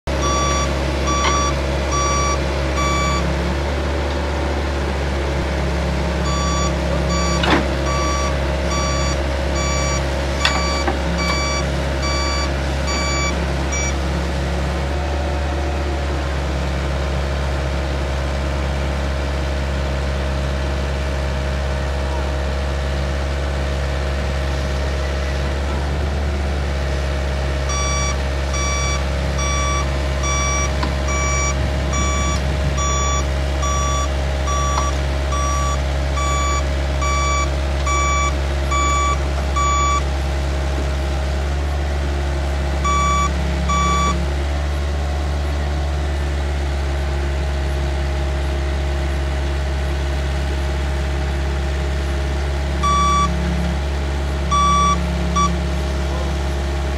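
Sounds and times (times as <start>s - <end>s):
excavator diesel engine running: 0.0s - 56.9s
travel alarm beeping: 0.2s - 3.3s, 6.2s - 14.0s, 27.7s - 40.0s, 42.8s - 44.2s, 52.8s - 53.3s, 54.5s - 55.6s.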